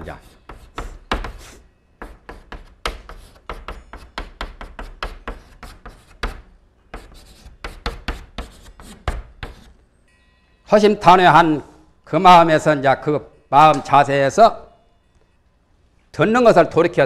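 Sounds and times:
chalk tapping and scraping: 0:00.0 - 0:09.8.

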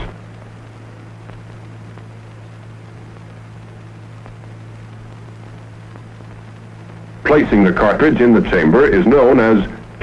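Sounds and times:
faint clicks: 0:00.0 - 0:07.1
even hiss: 0:00.0 - 0:10.0
low hum: 0:00.0 - 0:10.0.

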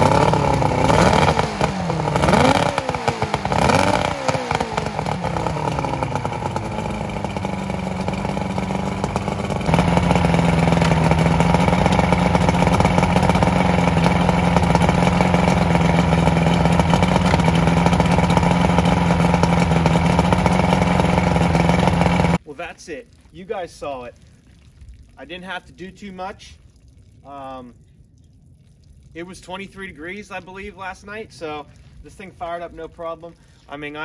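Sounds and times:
outboard engine revving and idling: 0:00.0 - 0:22.4.

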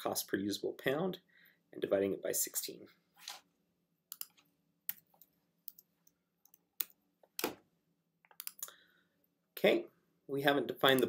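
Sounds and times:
keyboard and mouse clicks: 0:04.1 - 0:07.6, 0:08.2 - 0:08.7.

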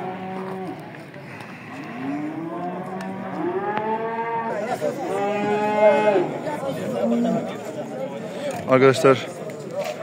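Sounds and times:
cattle mooing: 0:00.0 - 0:00.8, 0:01.6 - 0:07.6.

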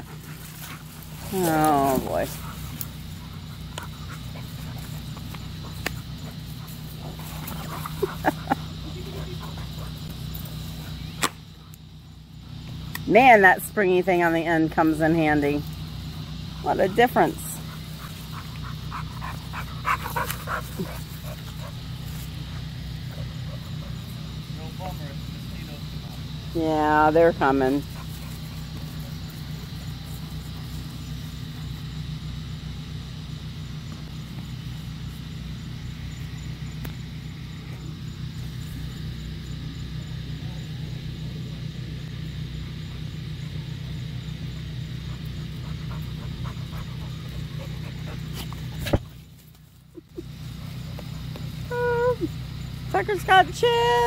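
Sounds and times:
dogs play-fighting: 0:00.0 - 0:11.8, 0:15.6 - 0:24.6, 0:27.8 - 0:31.9, 0:42.7 - 0:52.9
steady low hum: 0:00.0 - 0:54.0.

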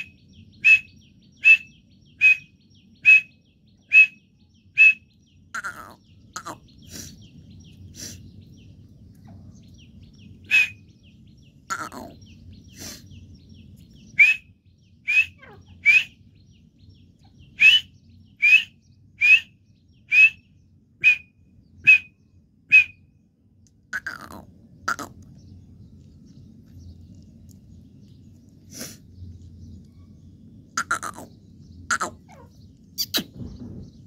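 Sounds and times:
francolin calling: 0:00.0 - 0:08.2, 0:10.2 - 0:13.0, 0:14.0 - 0:16.4, 0:17.2 - 0:23.0, 0:30.7 - 0:33.2
faint low hum: 0:20.5 - 0:34.0.

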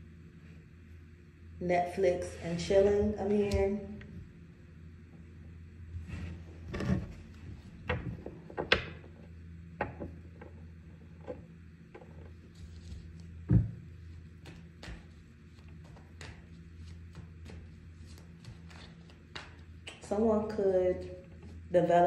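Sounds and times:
steady low hum: 0:00.0 - 0:22.0
light rubbing of cards: 0:12.4 - 0:13.4, 0:15.0 - 0:19.6.

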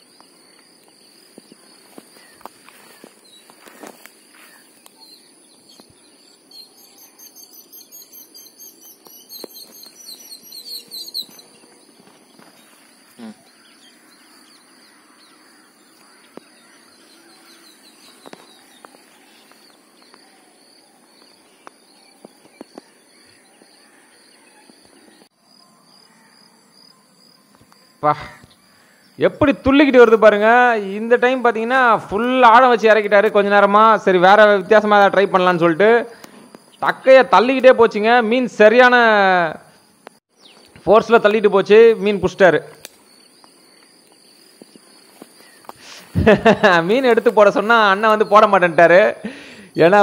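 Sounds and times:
high insect drone: 0:00.0 - 0:38.2, 0:38.8 - 0:50.0.

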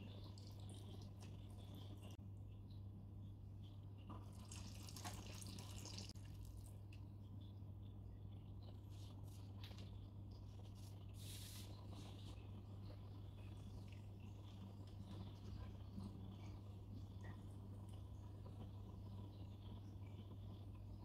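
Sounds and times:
water trickling and dripping: 0:00.0 - 0:02.9, 0:04.0 - 0:07.2
steady low hum: 0:00.0 - 0:21.0.

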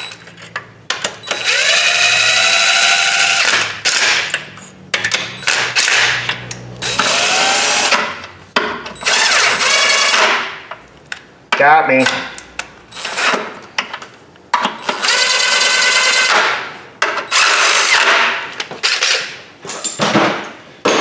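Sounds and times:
electric ratchet whirring: 0:01.2 - 0:04.2, 0:05.4 - 0:08.0, 0:09.0 - 0:10.3.

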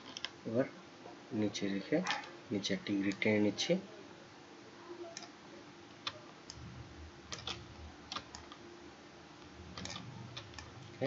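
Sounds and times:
computer mouse clicks: 0:05.1 - 0:05.4, 0:07.3 - 0:08.6, 0:09.7 - 0:11.0
keyboard clicks: 0:07.3 - 0:08.6, 0:09.7 - 0:10.9.

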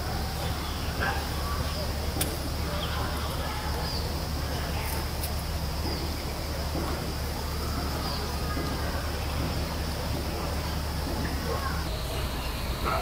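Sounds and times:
constant low rumble: 0:00.0 - 0:13.0.

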